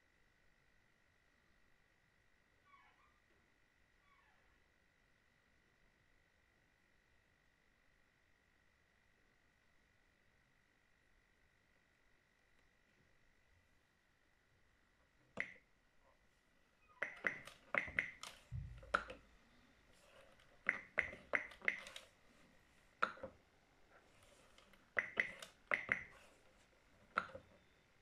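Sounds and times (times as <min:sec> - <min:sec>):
keyboard key clicks: 0:17.0 - 0:19.2, 0:20.6 - 0:22.1, 0:25.0 - 0:26.2.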